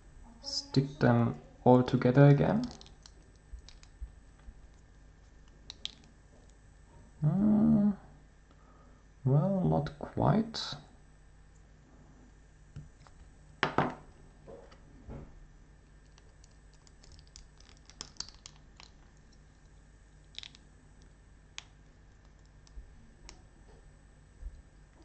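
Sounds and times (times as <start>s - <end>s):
plastic pieces clicking: 2.6s - 4.0s, 5.4s - 6.1s, 16.1s - 19.0s, 20.3s - 20.6s.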